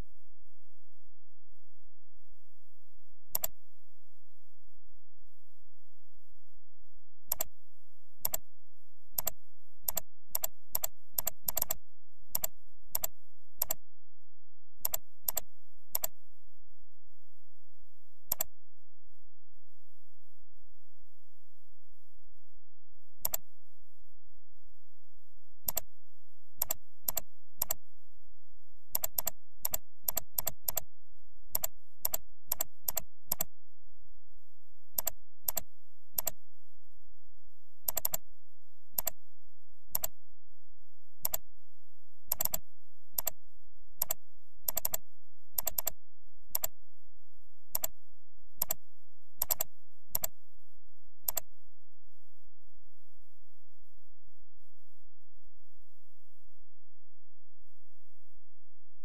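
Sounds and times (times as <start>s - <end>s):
computer mouse clicks: 3.3s - 3.6s, 7.3s - 7.5s, 8.2s - 8.4s, 9.2s - 13.8s, 14.8s - 16.2s, 18.3s - 18.5s, 23.2s - 23.4s, 25.6s - 25.9s, 26.6s - 27.8s, 28.9s - 30.9s, 31.5s - 33.5s, 35.0s - 36.4s, 37.9s - 38.2s, 39.0s - 39.2s, 39.9s - 40.2s, 41.2s - 41.4s, 42.3s - 42.6s, 43.2s - 43.4s, 44.0s - 45.0s, 45.6s - 46.8s, 47.7s - 48.0s, 48.6s - 48.8s, 49.4s - 50.4s, 51.2s - 51.5s.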